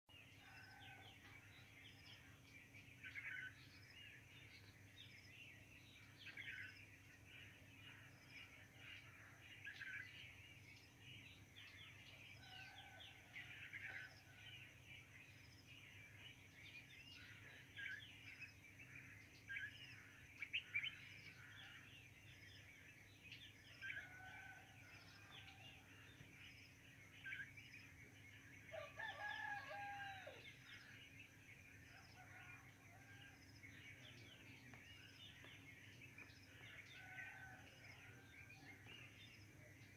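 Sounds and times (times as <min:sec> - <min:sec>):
rooster crowing: 0:24.0 - 0:25.8, 0:28.7 - 0:30.4, 0:36.9 - 0:38.2
small birds chirping: 0:31.8 - 0:39.9.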